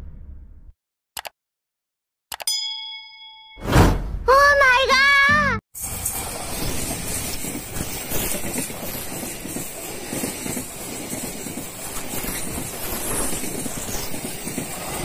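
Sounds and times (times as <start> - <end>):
train wheels rumbling on rails: 6.1 - 15.0
wheels clacking: 6.8 - 15.0.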